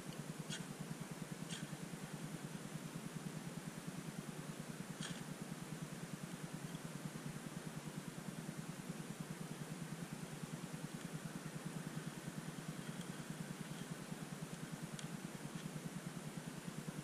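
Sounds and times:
faint ticks: 0.0s - 0.8s, 1.4s - 1.9s, 5.0s - 5.4s, 6.2s - 6.9s, 10.8s - 15.8s
small engine humming: 0.0s - 17.0s.

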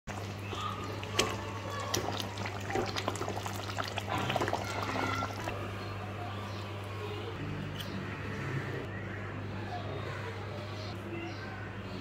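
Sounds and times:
curry bubbling and popping: 0.1s - 5.6s.

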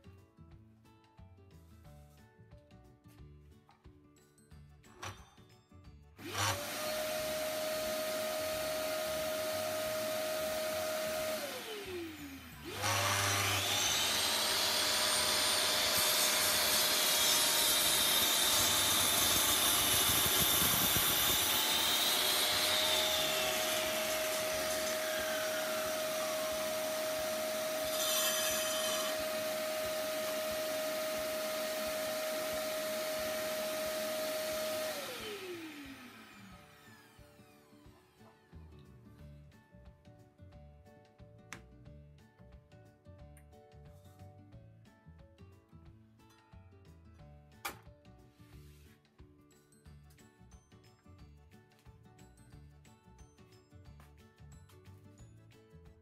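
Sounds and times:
saw motor whine: 6.2s - 38.2s
saw cutting wooden board: 6.2s - 38.4s
vacuum cleaner running: 6.2s - 38.5s.

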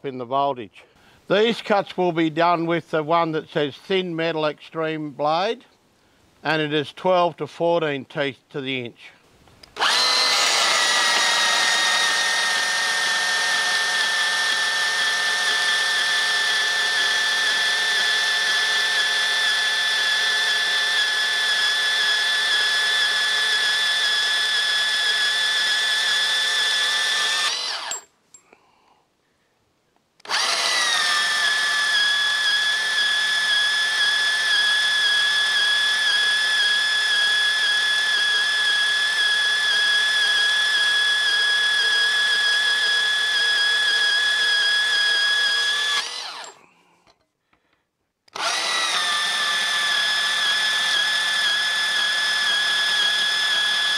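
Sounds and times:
bandsaw cutting metal: 9.8s - 28.1s, 30.2s - 46.6s, 48.4s - 53.9s.

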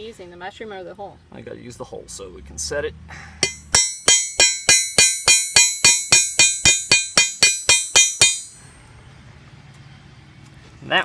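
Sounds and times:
hammer striking metal: 3.4s - 8.7s.

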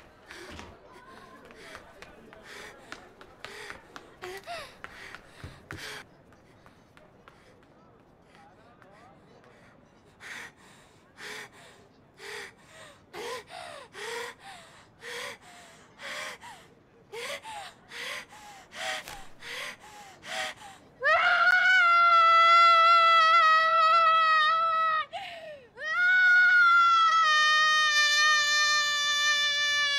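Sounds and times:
woman gasping and sobbing: 25.1s - 25.8s.

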